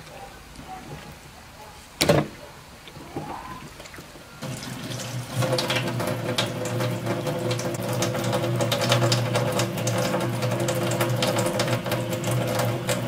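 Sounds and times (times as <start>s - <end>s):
water running into metal sink: 4.4s - 13.0s.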